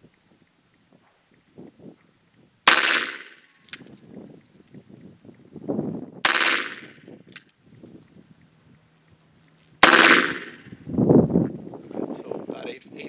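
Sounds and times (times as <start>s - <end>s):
revolver gunshots: 2.6s - 3.5s, 6.2s - 7.1s, 9.8s - 10.7s.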